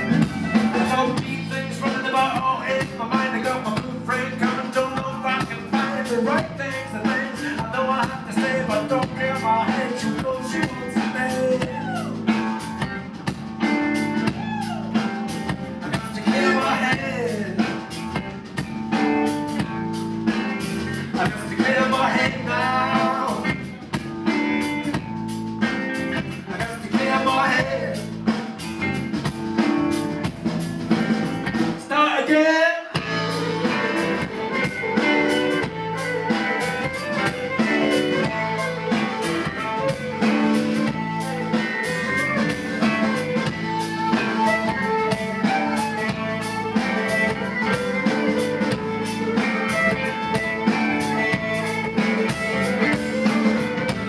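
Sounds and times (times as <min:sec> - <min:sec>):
man singing: 0:00.0 - 0:12.6, 0:15.8 - 0:18.0, 0:21.0 - 0:24.0, 0:26.3 - 0:28.4, 0:31.8 - 0:34.7
live funk band playing: 0:00.0 - 0:54.0.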